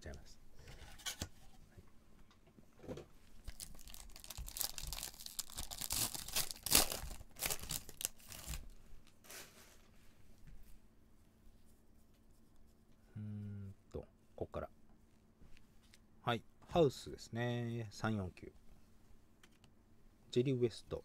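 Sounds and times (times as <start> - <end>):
plastic wrapper crinkling and ripping: 3.4 - 9.2.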